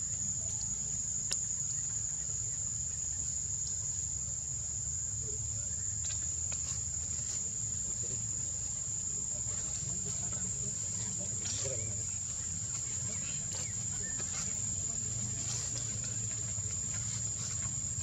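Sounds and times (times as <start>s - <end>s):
insects droning: 0.0s - 18.0s
faint ticks: 0.4s - 2.1s.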